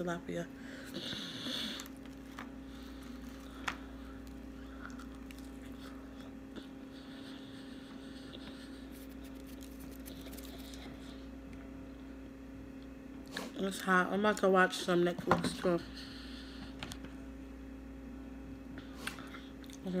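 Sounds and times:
low electrical hum: 0.0 - 20.0
soft chewing: 0.9 - 11.8.

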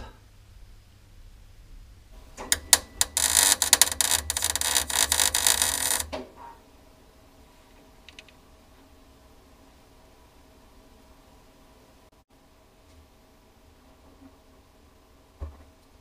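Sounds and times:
arc welder crackling: 2.4 - 6.2.

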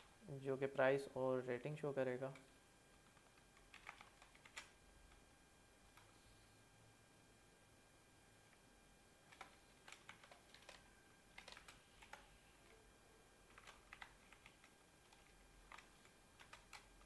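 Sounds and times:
faint keyboard typing: 2.2 - 5.2, 5.9 - 6.2, 9.2 - 17.0.

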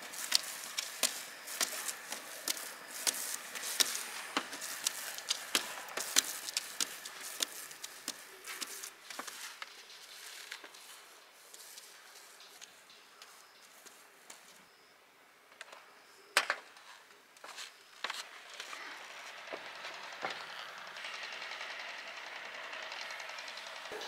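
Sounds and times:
taps and clicks on steel roofing: 0.0 - 14.5.

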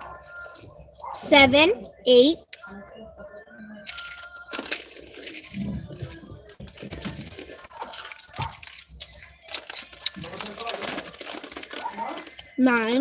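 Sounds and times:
chips crunching being chewed: 3.8 - 13.0.

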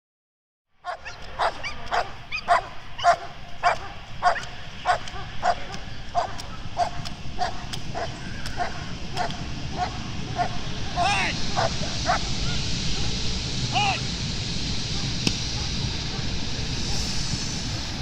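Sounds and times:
dog barking: 0.8 - 10.6, 11.6 - 12.3, 12.9 - 13.2, 15.0 - 16.3.

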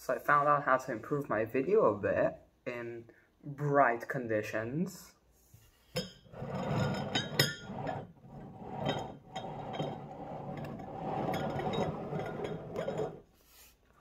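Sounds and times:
glasses clinking on table: 6.0 - 8.1, 8.7 - 13.2.

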